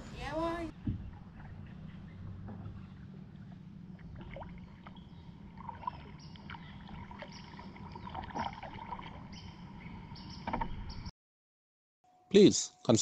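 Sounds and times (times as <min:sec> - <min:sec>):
water and hull noise: 0:00.0 - 0:11.1
soft paddle splashes: 0:05.6 - 0:09.3.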